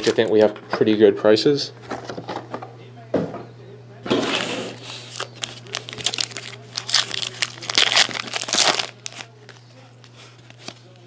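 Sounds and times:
foil wrapper crinkling: 0:04.8 - 0:09.6.

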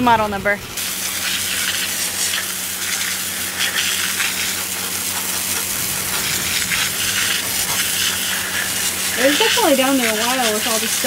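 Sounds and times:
hose spraying water: 0:00.8 - 0:11.0.

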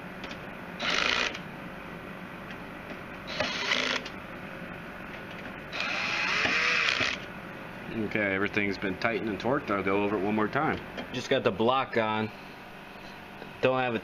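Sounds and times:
drill clutch ratcheting: 0:00.8 - 0:01.4, 0:03.3 - 0:04.1, 0:05.8 - 0:07.2
drill-driver tightening screws: 0:00.8 - 0:01.4, 0:03.3 - 0:04.1, 0:05.8 - 0:07.2.

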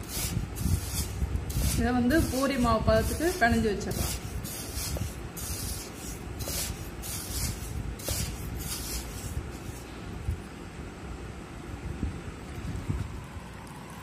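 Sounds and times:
hand mixing flour in steel bowl: 0:00.0 - 0:09.9.

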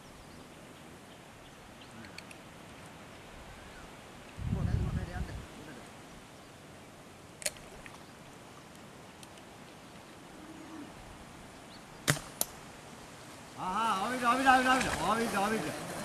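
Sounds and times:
faint sharp click: 0:02.0 - 0:02.4, 0:08.7 - 0:09.5
dart gun cracks: 0:12.1 - 0:12.6.

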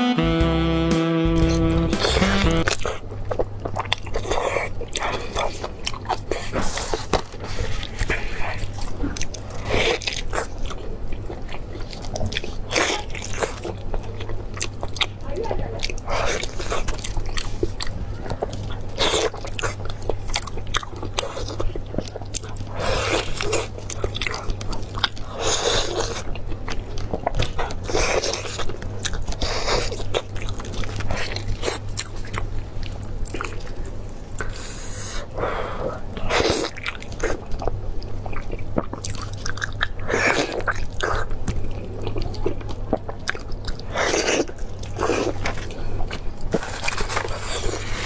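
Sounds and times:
biting and chewing meat: 0:01.5 - 0:48.0.

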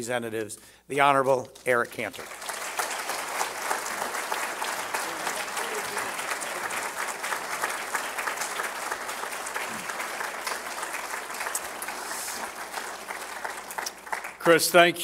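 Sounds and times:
audience applauding: 0:01.5 - 0:14.9.

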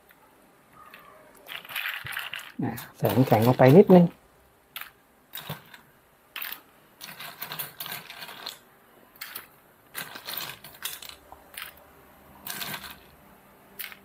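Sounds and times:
ice cubes clinking in plastic cup: 0:00.9 - 0:03.9.

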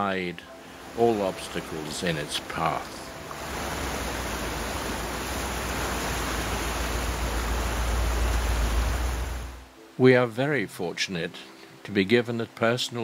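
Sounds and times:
river rushing: 0:00.5 - 0:10.0.

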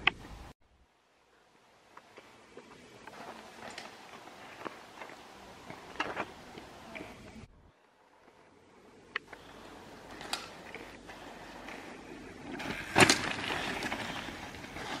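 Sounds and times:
bicycle tyre rolling on asphalt: 0:01.3 - 0:15.0.

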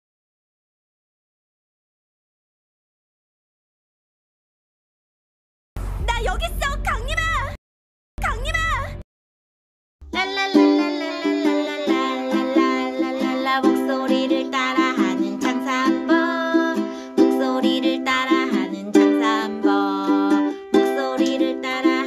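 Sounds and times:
cheerful plucked-string music: 0:10.1 - 0:22.0.

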